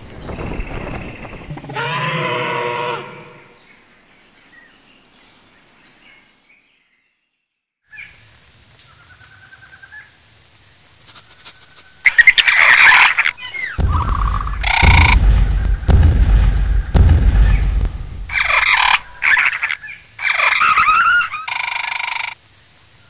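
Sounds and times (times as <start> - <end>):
loud creature screech: 1.7 - 3.5.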